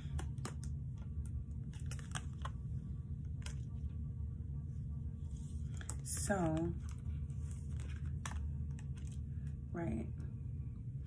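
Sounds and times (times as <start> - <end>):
cards clicking and tapping: 0.0 - 2.6, 5.7 - 9.2
steady low hum: 0.0 - 11.0.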